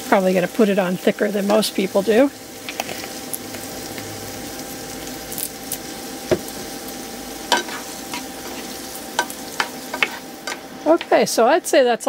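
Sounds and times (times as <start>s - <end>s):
onions and peppers sizzling: 0.0s - 12.0s
spatula stirring: 7.5s - 11.2s.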